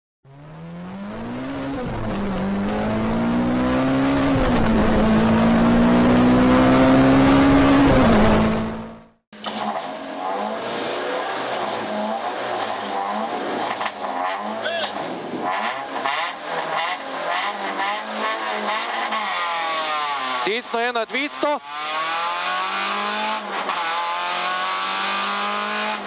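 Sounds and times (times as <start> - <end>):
rally car engine accelerating: 0.3 - 20.6, 21.2 - 26.0.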